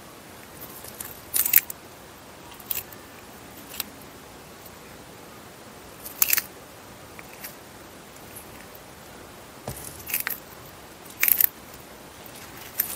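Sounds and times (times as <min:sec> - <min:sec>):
tortoise crunching leafy greens: 0:00.4 - 0:01.8, 0:02.4 - 0:04.8, 0:05.9 - 0:08.8, 0:09.8 - 0:12.9.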